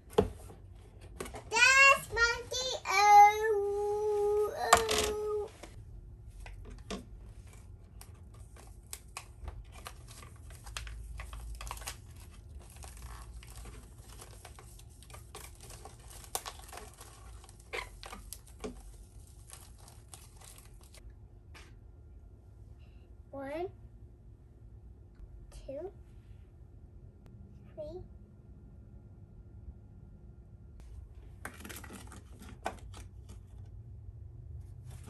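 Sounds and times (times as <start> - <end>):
paper packet crinkling: 8.1 - 21.0.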